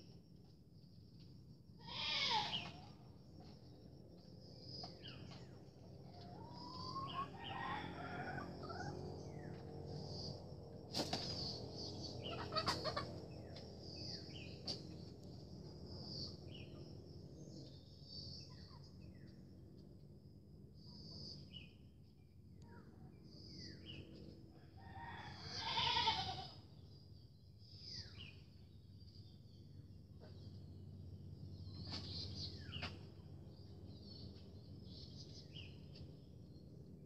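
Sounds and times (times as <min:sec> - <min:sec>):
steady low hum: 0:00.0 - 0:37.0
chickens calling: 0:06.1 - 0:09.6, 0:12.1 - 0:13.6.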